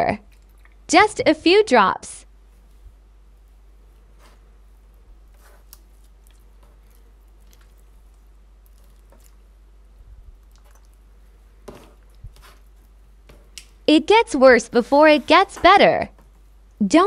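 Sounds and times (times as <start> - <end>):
slime wet clicks and squelches: 10.4 - 11.0.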